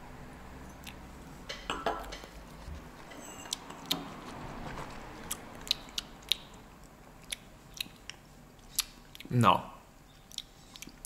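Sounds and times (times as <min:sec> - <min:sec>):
lip smacks: 0:05.2 - 0:09.3, 0:10.3 - 0:11.0.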